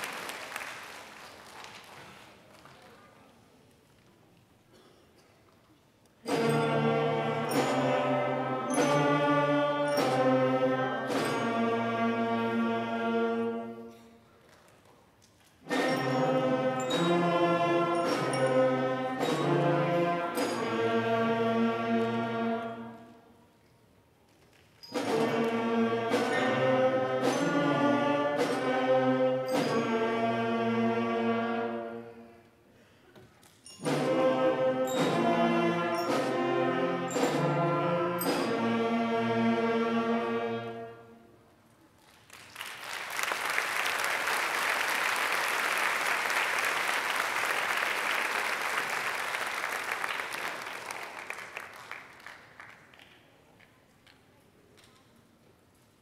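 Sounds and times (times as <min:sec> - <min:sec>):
audience applauding: 0:00.0 - 0:03.2, 0:42.0 - 0:53.4
school band playing long notes: 0:06.2 - 0:14.0, 0:15.6 - 0:23.3, 0:24.9 - 0:32.4, 0:33.7 - 0:41.4.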